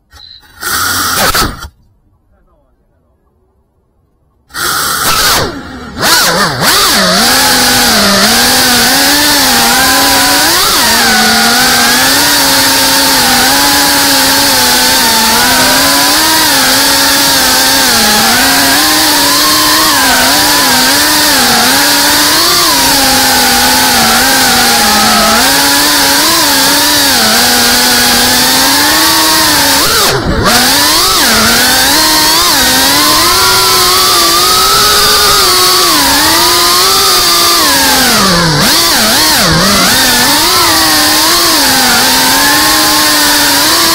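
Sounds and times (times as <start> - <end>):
drone motors whining: 0.0 - 1.8, 4.5 - 43.9.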